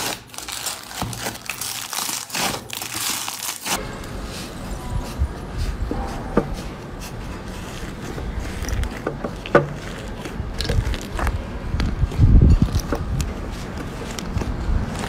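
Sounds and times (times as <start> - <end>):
slime crackling and squelching: 0.0 - 15.0.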